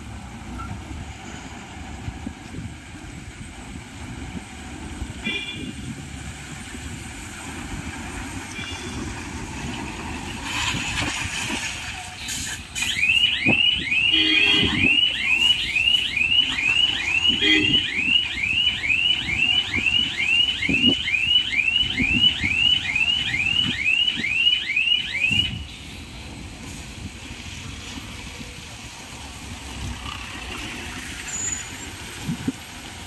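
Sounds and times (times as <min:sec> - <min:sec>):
diesel engine rumble: 0:00.0 - 0:24.4, 0:25.0 - 0:33.0.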